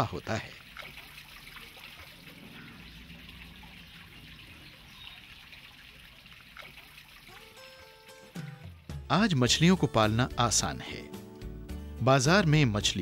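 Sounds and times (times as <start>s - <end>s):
fountain water splashing: 0.0s - 8.5s.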